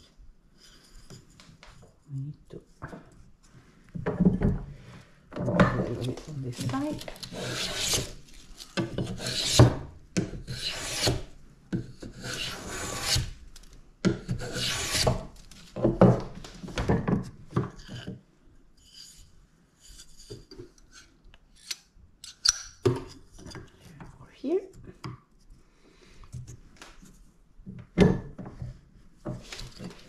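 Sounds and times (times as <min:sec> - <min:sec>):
hand plane shaving wood: 0:06.0 - 0:08.2, 0:08.8 - 0:09.8, 0:10.4 - 0:11.3, 0:12.0 - 0:13.3, 0:14.2 - 0:15.3.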